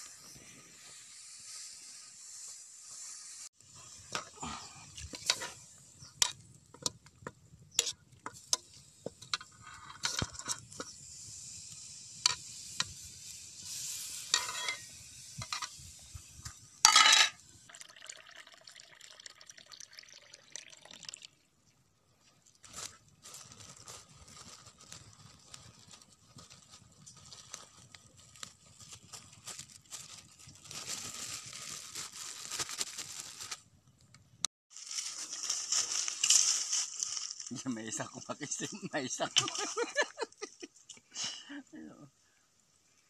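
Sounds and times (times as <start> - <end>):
steady hiss: 0.0 - 6.9, 7.9 - 17.6.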